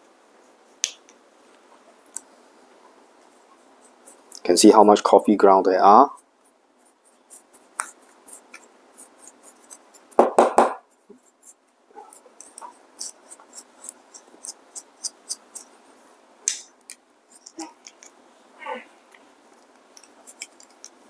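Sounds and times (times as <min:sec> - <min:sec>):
brush bristles scratching: 0:03.2 - 0:10.2, 0:10.9 - 0:16.1, 0:16.9 - 0:18.2, 0:19.5 - 0:21.0.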